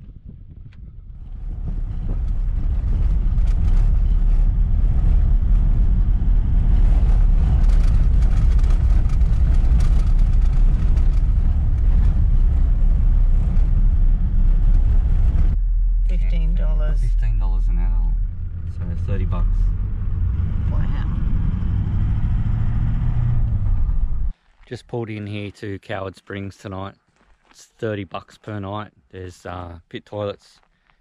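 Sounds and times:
vehicle rumbling on gravel road: 0.0s - 25.6s
clicks and rattles: 7.4s - 12.2s.

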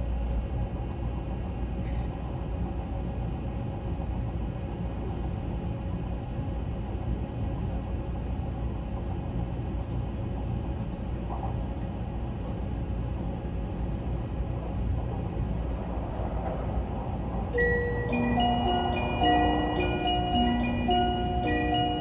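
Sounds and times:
train running low rumble: 0.0s - 22.0s
chime: 17.6s - 22.0s.

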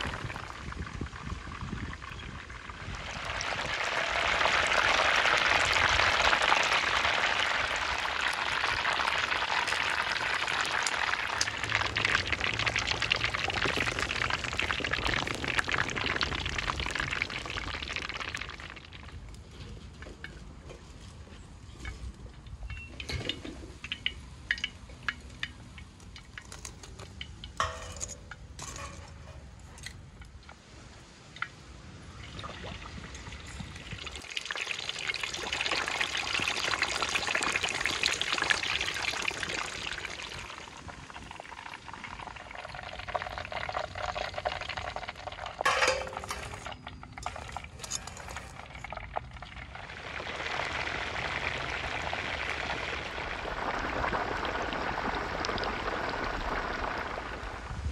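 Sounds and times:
oil bubbling and sizzling: 0.0s - 57.9s.

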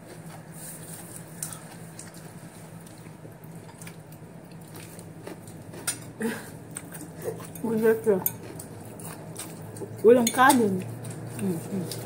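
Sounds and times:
person chewing salad: 0.0s - 10.0s, 10.8s - 12.0s
steady low hum: 0.0s - 12.0s.

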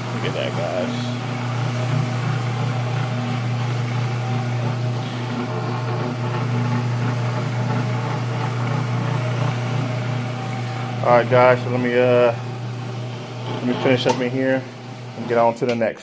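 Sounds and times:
floor machine motor humming: 0.0s - 16.0s.

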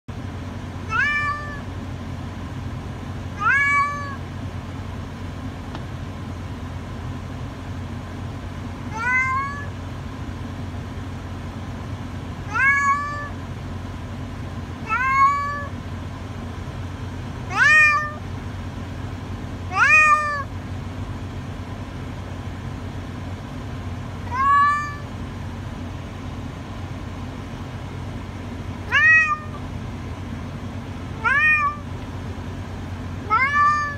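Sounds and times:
cat meowing: 0.8s - 1.7s, 3.4s - 4.2s, 8.9s - 9.7s, 12.5s - 13.4s, 14.8s - 15.7s, 17.5s - 18.2s, 19.7s - 20.5s, 24.2s - 25.1s, 28.9s - 29.6s, 31.2s - 31.9s, 33.2s - 33.9s.

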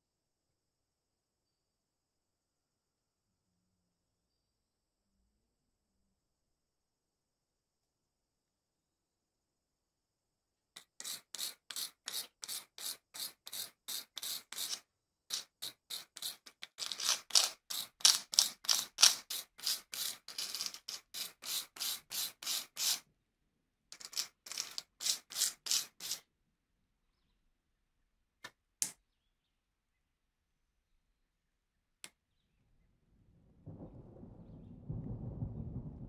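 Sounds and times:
metal scrubbed on wire brush: 10.8s - 23.0s, 24.0s - 26.2s.

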